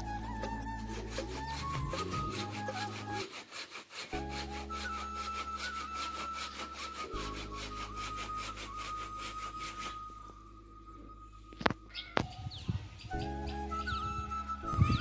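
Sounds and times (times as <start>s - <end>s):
background music with held tones: 0.0s - 3.3s, 4.1s - 15.0s
hand saw cutting branch: 0.2s - 10.0s.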